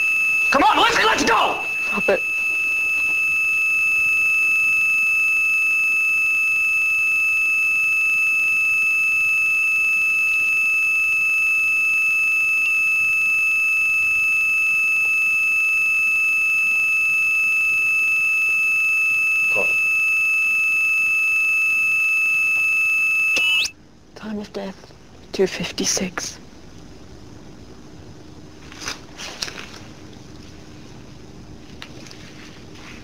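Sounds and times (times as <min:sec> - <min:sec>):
heart monitor flatline tone: 0:00.0 - 0:23.7.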